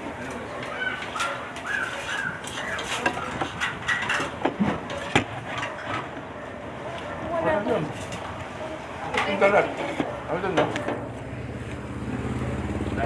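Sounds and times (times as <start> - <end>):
tableware clinking on a table: 1.0 - 6.2.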